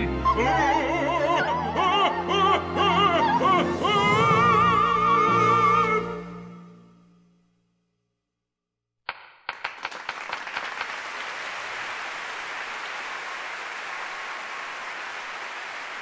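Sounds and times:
audience applauding: 0:09.1 - 0:16.0.

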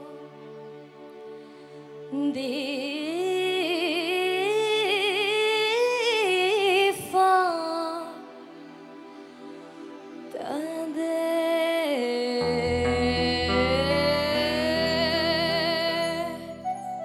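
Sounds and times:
woman singing a slow ballad: 0:02.1 - 0:08.2, 0:10.4 - 0:16.8
soft sustained backing chords: 0:09.7 - 0:17.0.

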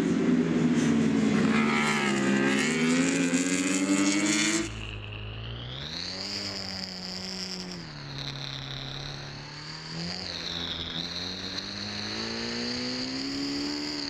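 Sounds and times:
high whine: 0:00.0 - 0:14.0
motorcycle engine accelerating: 0:00.0 - 0:14.0.

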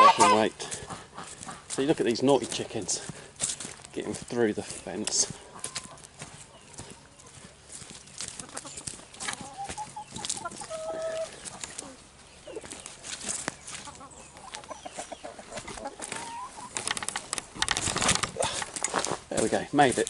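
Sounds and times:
chickens clucking: 0:00.0 - 0:20.0
footsteps on dry leaves: 0:00.0 - 0:20.0.

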